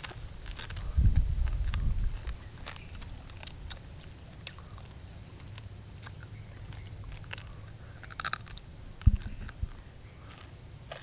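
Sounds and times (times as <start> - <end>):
crunching and chewing: 0.0 - 11.0
loud dull thump: 9.0 - 9.5.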